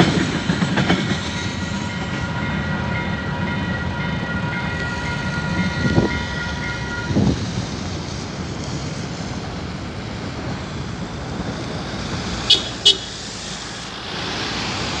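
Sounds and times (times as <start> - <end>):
cars passing on wet road: 8.1 - 15.0.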